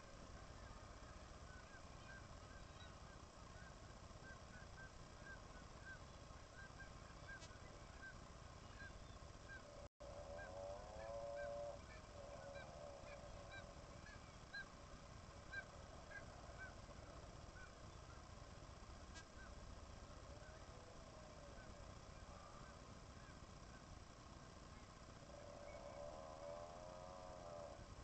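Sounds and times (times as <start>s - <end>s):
drawn-out honking bird call: 8.7s - 14.8s, 25.3s - 27.9s.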